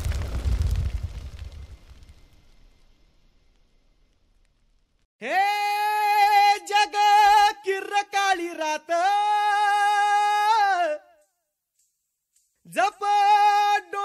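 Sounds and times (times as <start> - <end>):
solo voice singing: 5.2 - 11.2, 12.7 - 14.0.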